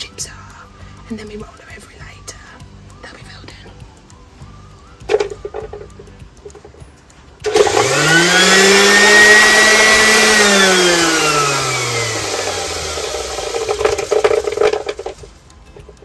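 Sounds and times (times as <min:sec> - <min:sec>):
electric sander whining: 0:07.4 - 0:15.2.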